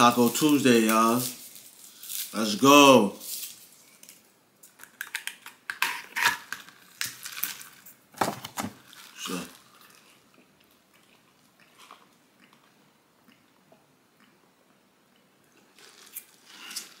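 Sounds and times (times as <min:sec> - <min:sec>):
straw wrapper crinkling: 0:00.0 - 0:11.1, 0:15.7 - 0:17.0.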